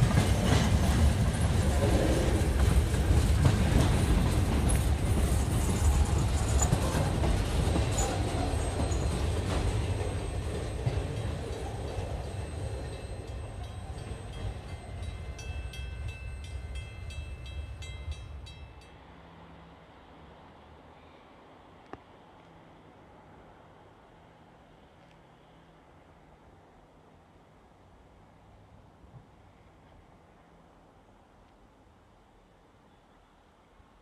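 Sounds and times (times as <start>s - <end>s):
sharp clicks of train wheels: 0.0s - 18.0s
freight train wheels rumbling: 0.0s - 19.1s.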